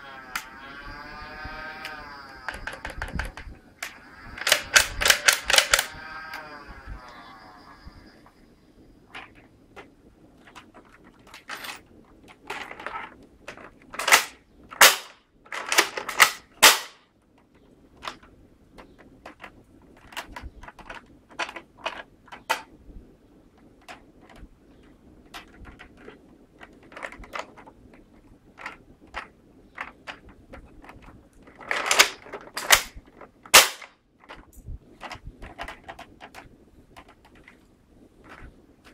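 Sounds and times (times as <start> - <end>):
toy blasters clicking and clacking: 0.0 - 7.3, 12.2 - 17.0, 28.6 - 37.6.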